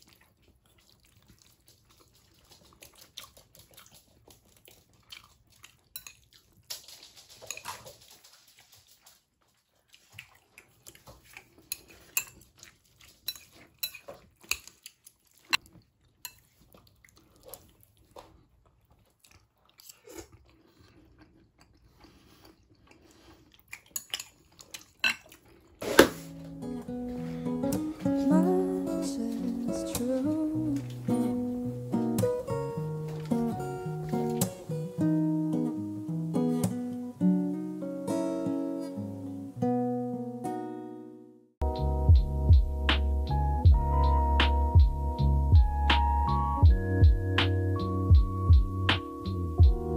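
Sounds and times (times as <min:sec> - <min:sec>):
chewing: 0:00.0 - 0:35.0.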